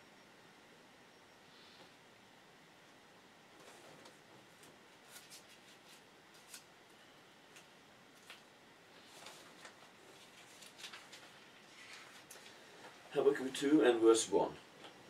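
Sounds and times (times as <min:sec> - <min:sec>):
pages rustling being leafed: 0:04.5 - 0:06.7, 0:08.2 - 0:12.6.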